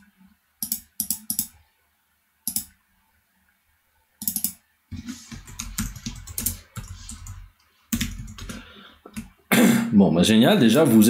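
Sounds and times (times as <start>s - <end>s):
computer mouse clicking: 0.6s - 1.6s, 2.4s - 2.7s, 4.2s - 4.6s, 5.3s - 9.3s
fast typing on keyboard: 5.2s - 9.3s.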